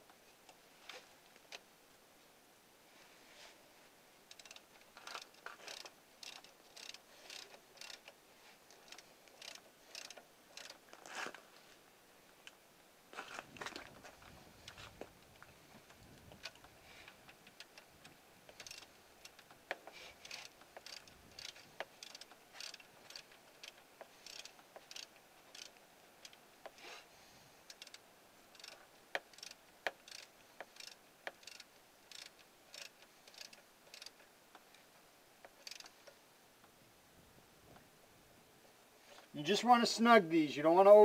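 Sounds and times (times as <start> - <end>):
ratchet wrench clicking: 4.3 - 8.2, 8.8 - 10.8, 18.6 - 26.4, 27.6 - 34.2, 35.5 - 35.9
sharp metal clicks: 4.3 - 10.8, 16.3 - 26.8, 27.6 - 34.2, 35.4 - 36.2.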